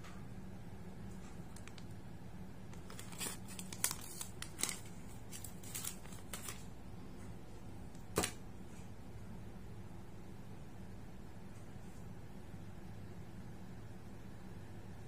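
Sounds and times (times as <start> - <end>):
paper bag crinkling: 2.8 - 6.7.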